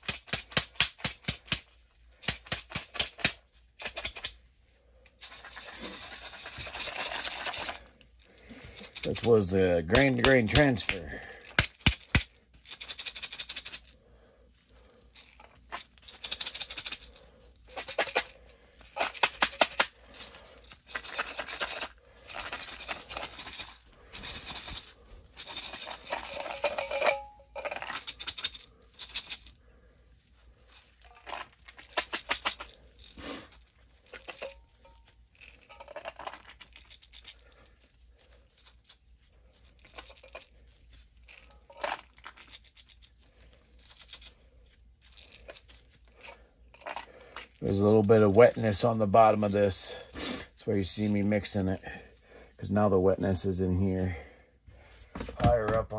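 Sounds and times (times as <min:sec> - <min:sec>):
grain rattling in glass jars: 0:05.2 - 0:07.9, 0:08.6 - 0:13.9, 0:14.8 - 0:29.6, 0:30.4 - 0:37.7, 0:38.5 - 0:44.4, 0:45.0 - 0:51.8.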